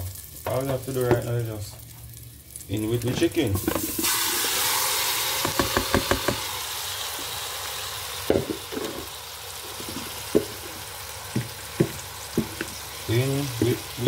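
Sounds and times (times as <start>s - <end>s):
chicken sizzling in a pot: 0.0s - 14.0s
spoon knocking inner pot: 5.4s - 6.4s.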